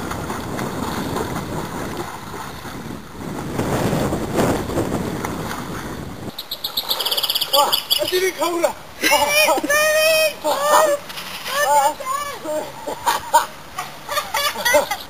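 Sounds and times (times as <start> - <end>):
wind buffeting microphone: 0.0 - 9.0
rushing river water: 0.0 - 15.0.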